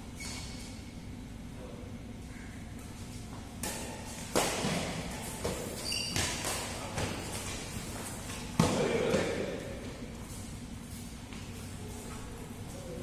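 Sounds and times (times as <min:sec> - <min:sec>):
rackets hitting shuttlecock: 0:03.6 - 0:09.6
high squeak: 0:05.8 - 0:06.3.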